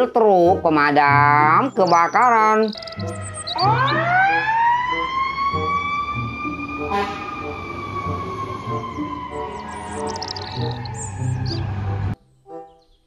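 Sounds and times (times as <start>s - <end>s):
fire truck siren wailing: 2.6s - 12.2s.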